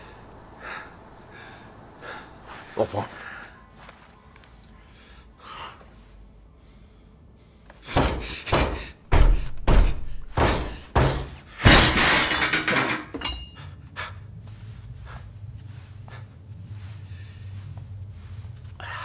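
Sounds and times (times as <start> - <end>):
shattering crash: 11.6 - 13.1.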